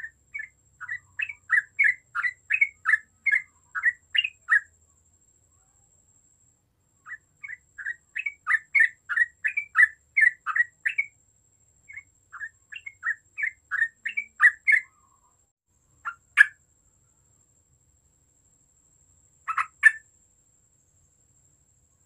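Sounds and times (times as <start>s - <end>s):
bulbul chattering song: 0.0s - 4.7s, 7.0s - 11.2s, 11.9s - 15.3s, 16.0s - 16.6s, 19.5s - 20.1s.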